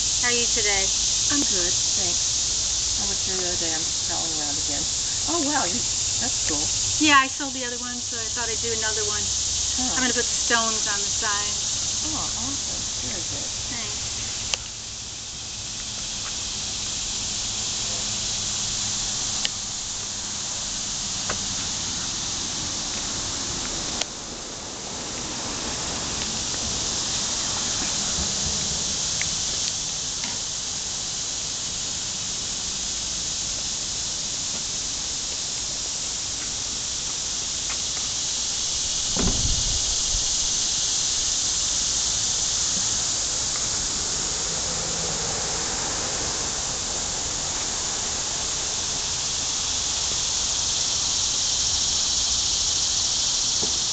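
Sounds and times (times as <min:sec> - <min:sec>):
cicadas buzzing: 0:00.0 - 0:53.9.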